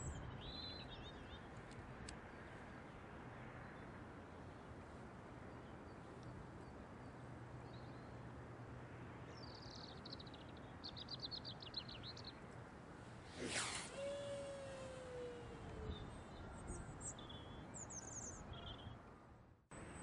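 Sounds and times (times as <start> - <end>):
faint outdoor noise: 0.0 - 20.0
fishing rod whooshing: 13.2 - 15.9
bird singing a high trill: 13.5 - 19.0.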